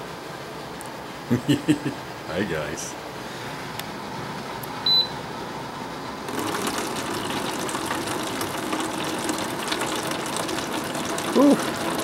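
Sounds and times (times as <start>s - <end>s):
short electronic beep: 4.8s - 5.2s
pump humming: 6.1s - 12.0s
water running into a jug: 6.3s - 12.0s.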